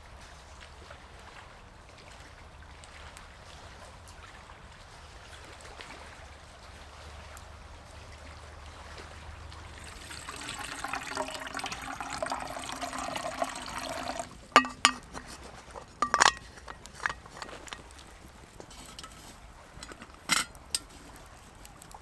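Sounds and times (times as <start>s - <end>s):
water pouring into metal pot: 9.6s - 20.9s.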